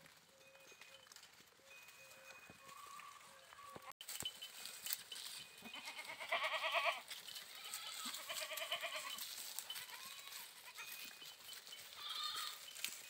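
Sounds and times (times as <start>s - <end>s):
goat bleating: 5.6s - 11.1s, 11.9s - 12.7s.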